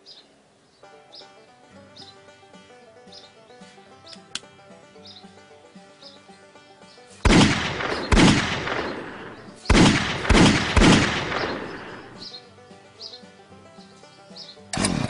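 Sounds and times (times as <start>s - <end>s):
background music: 0.8s - 15.0s
gunshot-like bangs: 7.2s - 12.2s.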